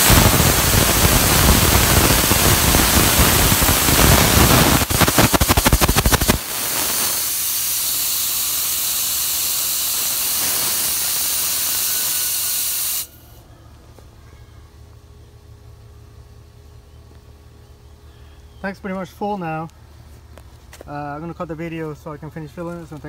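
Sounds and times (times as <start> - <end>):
rapid crackle: 0.0 - 9.0
propane venting hiss: 0.0 - 13.4.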